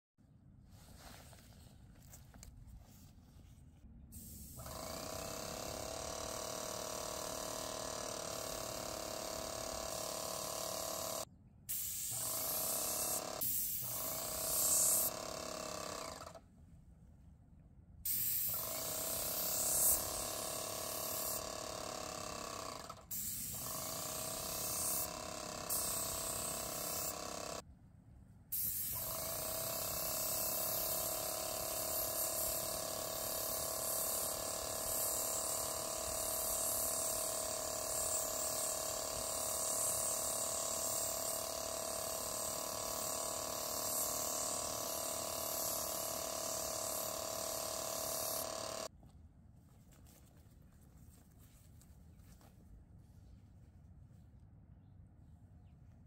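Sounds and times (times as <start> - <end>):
paint sprayer hissing: 4.1 - 16.4, 18.0 - 27.6, 28.5 - 48.9.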